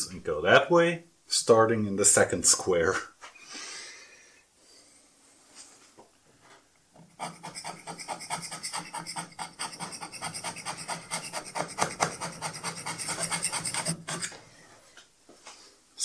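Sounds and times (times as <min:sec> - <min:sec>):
hand scraper scraping metal: 0:07.0 - 0:14.4.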